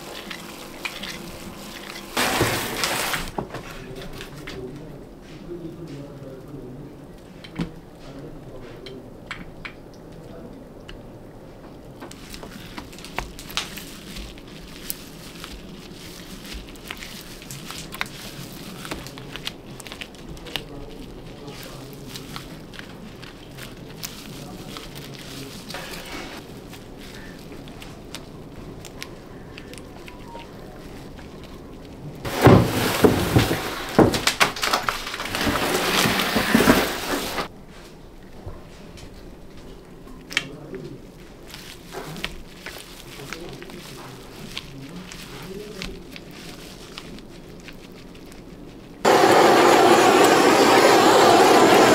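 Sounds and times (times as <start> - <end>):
low background noise: 0.0 - 49.4
wooden drawer sliding and scraping: 2.1 - 3.8, 32.3 - 34.4, 35.1 - 37.5
sticky clicks of wet resin: 12.1 - 32.3, 39.0 - 49.0.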